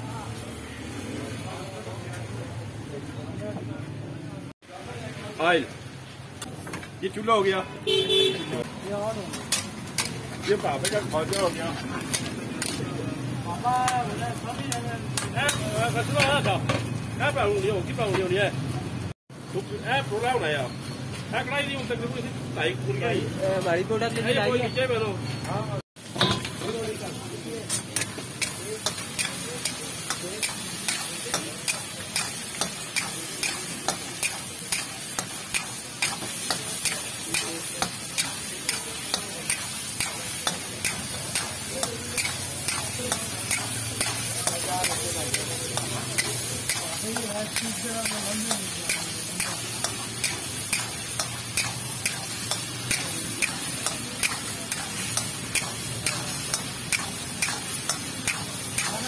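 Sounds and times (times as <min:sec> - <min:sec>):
spatula clanking against wok: 0:14.6 - 0:16.8, 0:26.0 - 0:27.0, 0:27.6 - 0:59.0
chicken sizzling in oil: 0:26.0 - 0:59.0.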